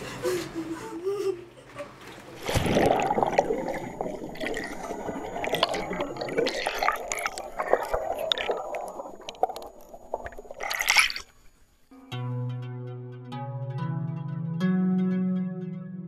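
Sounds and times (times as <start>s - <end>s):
water sloshing in a tub: 2.2s - 11.6s.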